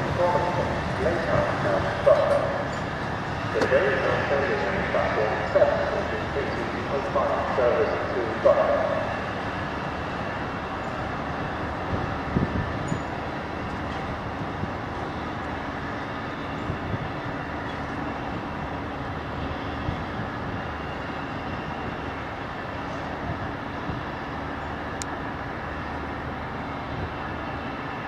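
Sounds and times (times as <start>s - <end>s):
train knocks: 0.0s - 16.0s
train rumbling: 0.0s - 28.0s.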